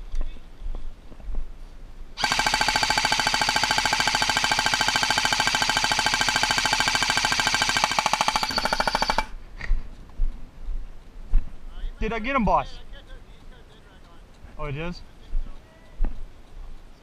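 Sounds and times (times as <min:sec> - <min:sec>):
airsoft rifle full-auto burst: 0:02.2 - 0:09.4.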